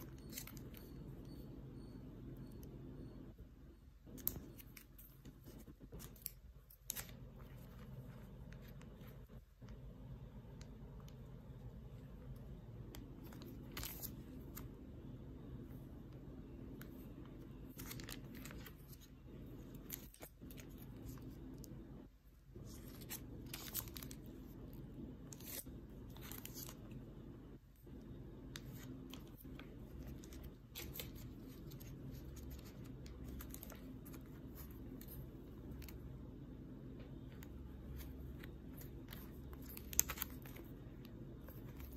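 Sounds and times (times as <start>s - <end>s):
steady low hum: 0.0s - 41.9s
plastic and paper crinkling: 12.2s - 14.7s, 16.7s - 21.7s, 22.5s - 27.1s, 27.9s - 36.1s, 37.2s - 41.9s.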